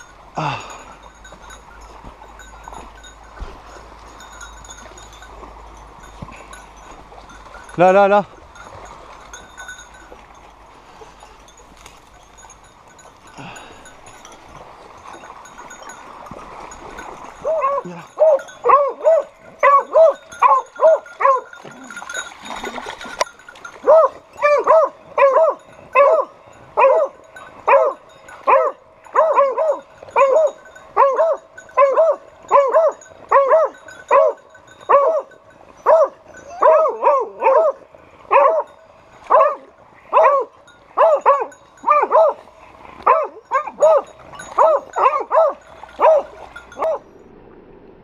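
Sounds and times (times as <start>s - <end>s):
dogs baying: 17.4s - 47.1s.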